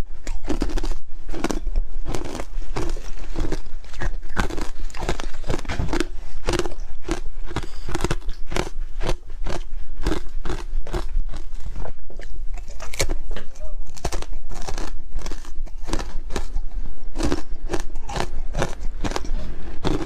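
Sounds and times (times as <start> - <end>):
ice being chewed: 0.0 - 20.0.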